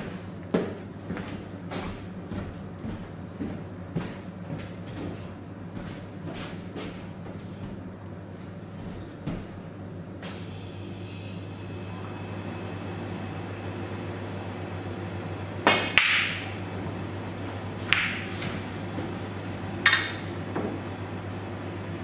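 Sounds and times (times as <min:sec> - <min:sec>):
snooker balls clicking: 0:15.6 - 0:16.5, 0:17.8 - 0:18.6, 0:19.8 - 0:20.4
cue tip striking ball: 0:15.6 - 0:16.6, 0:17.8 - 0:18.6, 0:19.8 - 0:20.8.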